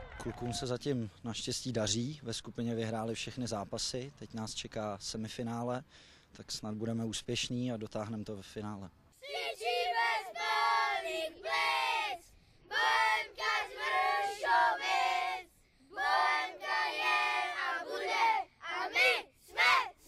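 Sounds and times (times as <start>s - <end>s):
boys chanting in unison: 9.2s - 20.0s.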